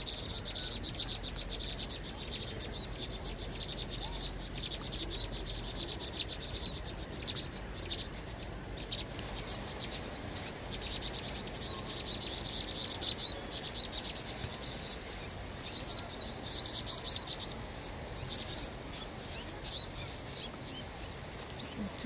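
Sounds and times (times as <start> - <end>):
birds' high alarm calls: 0.0 - 22.0.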